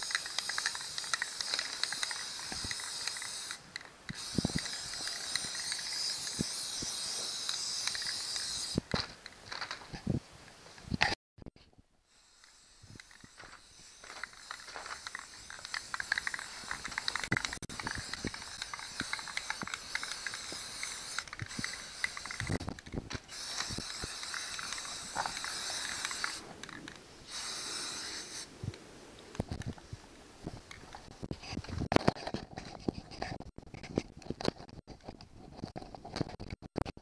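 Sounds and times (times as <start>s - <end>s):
spray paint can hissing: 0.0s - 9.0s, 12.1s - 28.5s.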